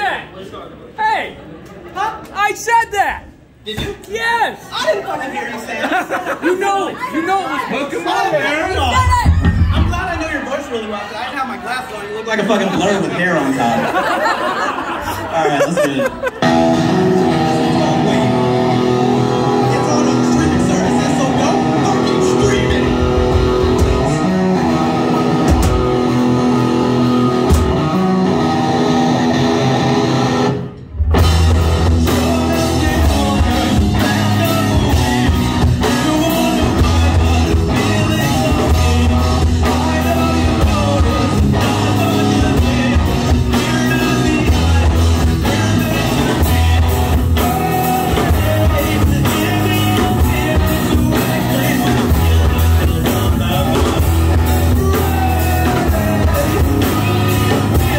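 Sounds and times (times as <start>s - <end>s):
live rock band playing: 8.6s - 11.1s, 16.2s - 57.9s
person singing: 32.0s - 57.9s.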